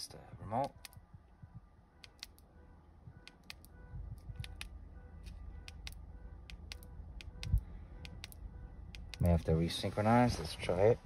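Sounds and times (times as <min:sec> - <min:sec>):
key fob button clicks: 0:00.6 - 0:01.0, 0:02.0 - 0:02.5, 0:03.2 - 0:09.5.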